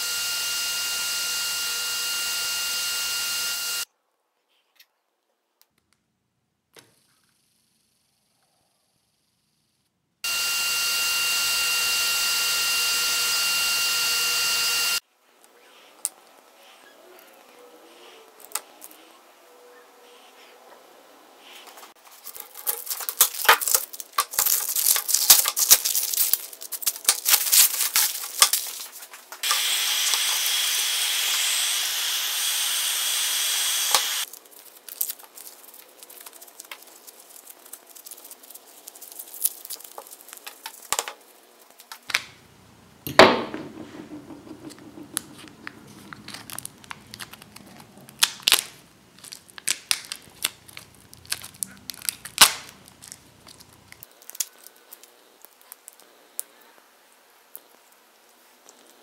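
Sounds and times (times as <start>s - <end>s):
crinkling and tearing: 21.6s - 30.2s, 34.0s - 42.2s, 45.0s - 56.7s.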